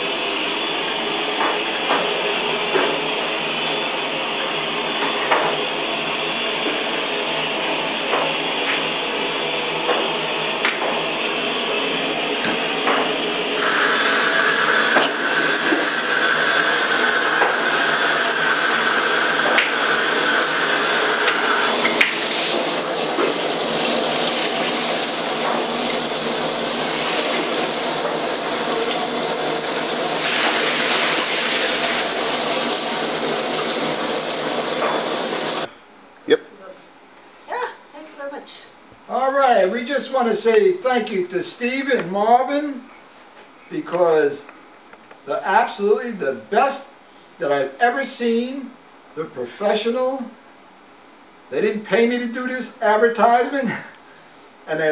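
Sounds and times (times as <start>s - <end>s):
shower water spraying on tiles: 13.6s - 35.7s.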